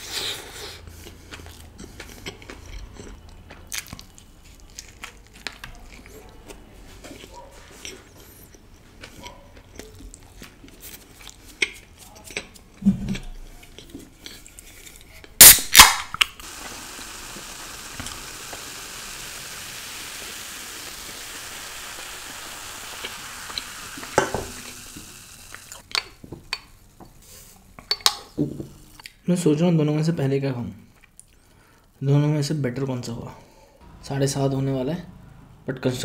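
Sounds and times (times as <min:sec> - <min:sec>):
soft chewing: 0:00.1 - 0:15.4, 0:30.8 - 0:32.0
can snapped open: 0:15.4 - 0:16.4
cola fizzing into a glass: 0:16.4 - 0:25.8.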